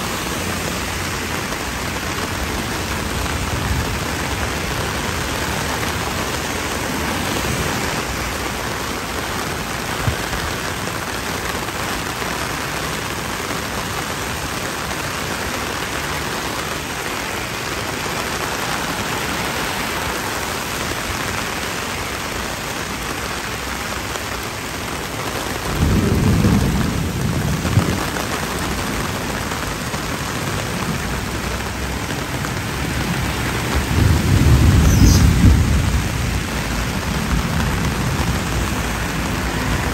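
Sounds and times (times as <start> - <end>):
torrential rain on pavement: 0.0 - 39.9
thunder rumbling: 25.4 - 39.9.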